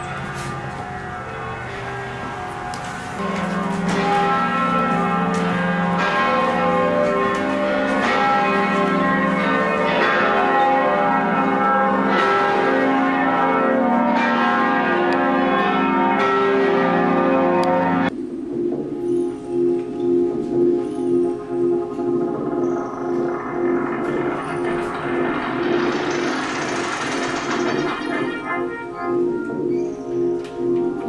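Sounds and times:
bell chime music: 0.0s - 2.2s, 19.0s - 31.0s
different music: 18.1s - 31.0s.

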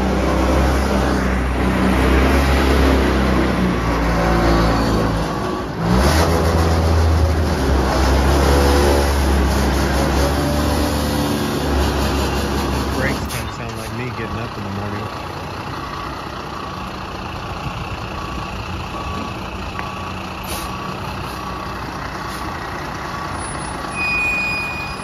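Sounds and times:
diesel truck engine running: 0.0s - 25.0s.

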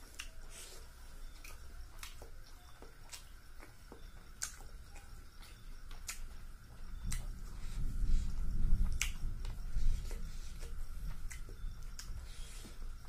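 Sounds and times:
chewing: 0.0s - 13.0s
wet mouth clicks and smacks: 1.4s - 5.1s, 5.9s - 6.4s, 7.0s - 7.3s, 8.8s - 12.2s.

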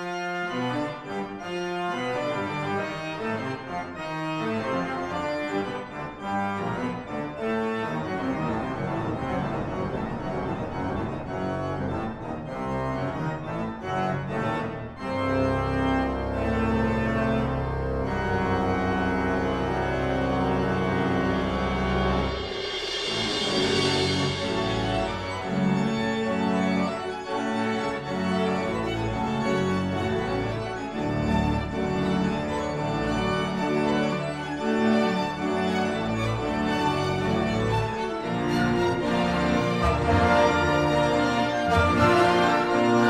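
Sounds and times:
organ playing: 0.0s - 43.0s
suspended cymbal roll: 22.0s - 25.8s.

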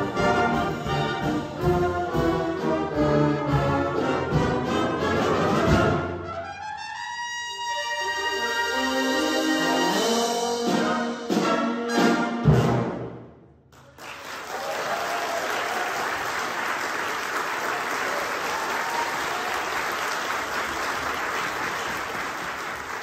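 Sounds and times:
audience applause: 13.8s - 23.0s.

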